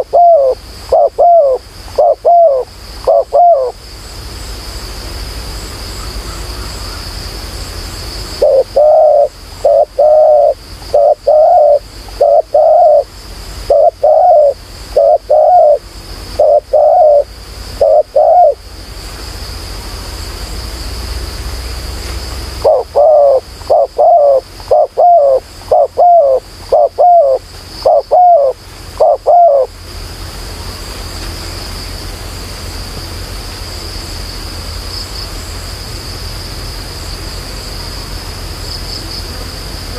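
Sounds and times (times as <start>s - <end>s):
dove cooing: 0.0s - 3.8s, 8.4s - 18.6s, 22.6s - 29.7s
high insect drone: 0.0s - 39.9s.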